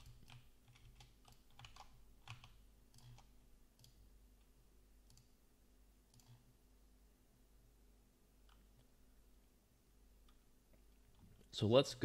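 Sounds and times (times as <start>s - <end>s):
mouse and keyboard clicks: 0.0s - 4.0s.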